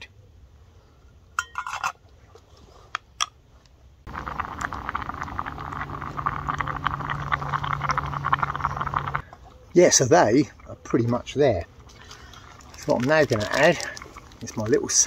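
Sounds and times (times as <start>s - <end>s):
noodles simmering crackle: 4.1s - 9.3s, 9.9s - 15.0s.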